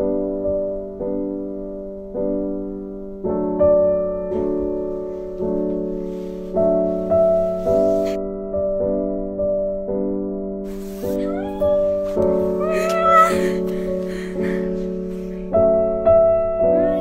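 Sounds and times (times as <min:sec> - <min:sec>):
slow gentle piano chords: 0:00.0 - 0:17.0
faint hiss: 0:04.3 - 0:08.2, 0:10.7 - 0:15.9.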